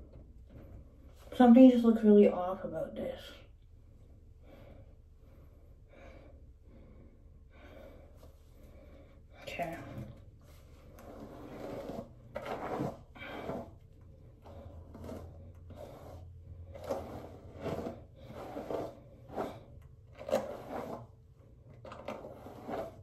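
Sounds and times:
hairbrush strokes through hair: 14.9s - 19.6s, 22.2s - 23.0s.

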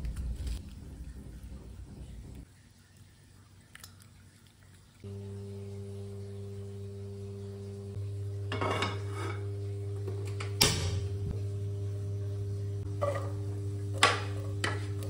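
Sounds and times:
low electrical hum: 0.0s - 15.0s
metal wok clank: 8.5s - 9.3s.

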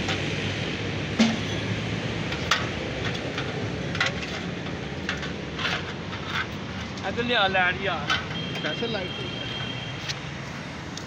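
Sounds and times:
sharp metal knocks: 1.2s - 1.7s.

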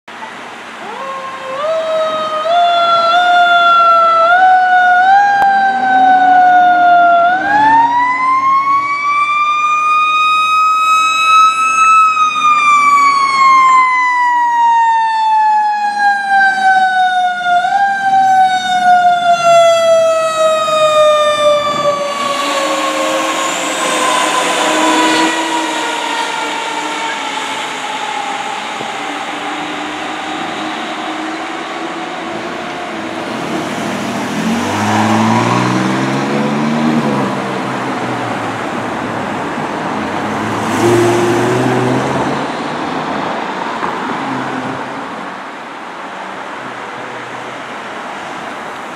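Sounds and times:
rushing road noise: 0.1s - 48.9s
mechanical siren wailing: 0.8s - 33.4s, 34.4s - 37.2s.

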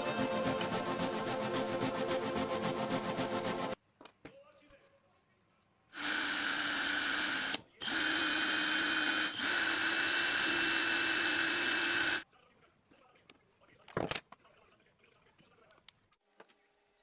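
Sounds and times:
electric drill drilling into board: 6.0s - 12.2s.

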